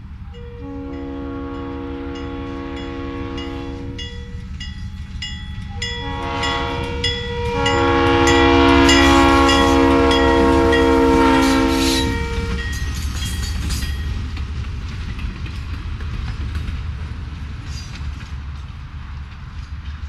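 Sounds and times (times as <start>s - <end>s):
passing train rumble: 0.0s - 20.0s
locomotive air horn: 0.3s - 4.2s, 5.8s - 12.7s.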